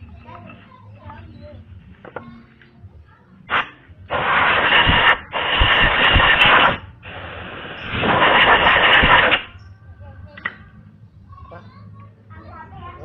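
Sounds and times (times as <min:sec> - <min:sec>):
compressed air blow gun hissing: 0:03.5 - 0:09.6.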